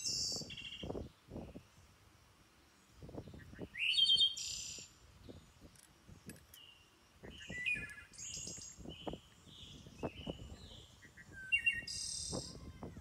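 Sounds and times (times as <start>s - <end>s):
birds chirping: 3.0s - 13.0s.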